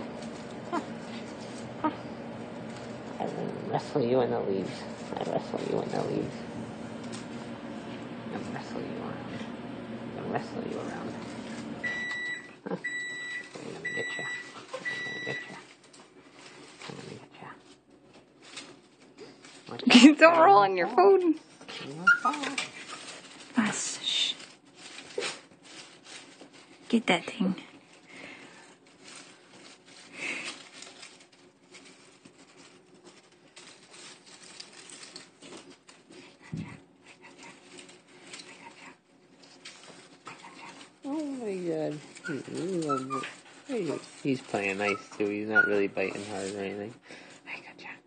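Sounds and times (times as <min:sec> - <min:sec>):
leaves rustling in a cage: 0:00.0 - 0:47.7
rustling on fleece bedding: 0:39.6 - 0:46.8.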